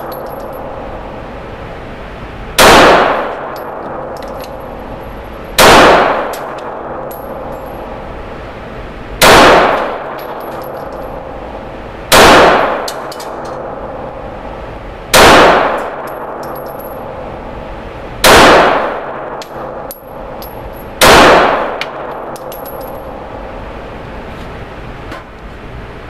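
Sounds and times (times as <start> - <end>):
brass casings clinking: 0.0 - 0.7, 3.5 - 5.6, 10.0 - 11.3, 19.5 - 21.0, 21.8 - 23.3
pistol shots echoing: 2.6 - 4.6, 5.6 - 7.5, 9.2 - 10.8, 12.1 - 13.9, 15.1 - 16.5, 18.2 - 20.3, 21.0 - 22.7.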